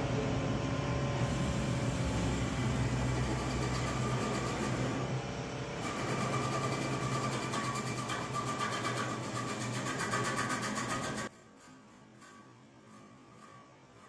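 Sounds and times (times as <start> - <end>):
steady whine: 0.0 - 11.3
wood lathe running: 1.4 - 5.2, 5.8 - 11.3.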